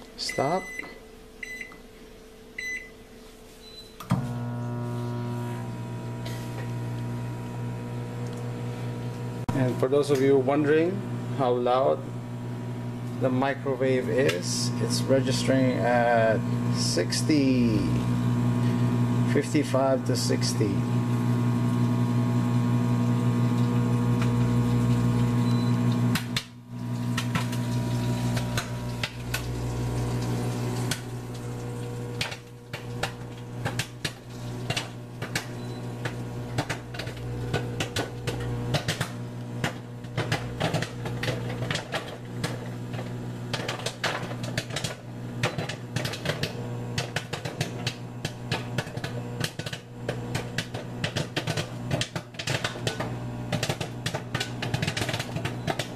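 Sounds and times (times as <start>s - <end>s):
microwave humming: 0.0s - 55.9s
popcorn kernels popping: 43.5s - 55.9s.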